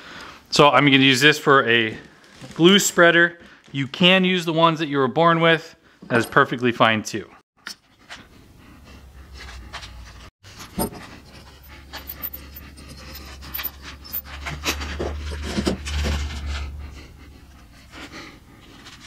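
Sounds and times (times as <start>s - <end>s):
heavy breathing: 8.1s - 14.4s, 16.3s - 19.0s
low hum: 10.9s - 18.7s.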